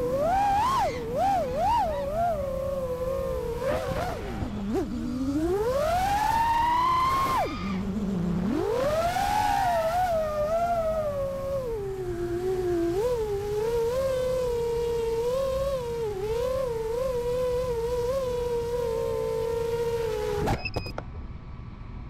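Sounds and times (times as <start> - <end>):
drone motors and propellers whining: 0.0 - 20.9.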